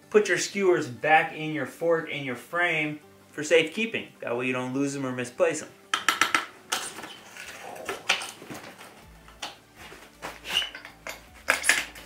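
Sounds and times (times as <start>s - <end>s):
bike frame clicks and knocks: 6.0s - 7.1s, 10.6s - 12.0s.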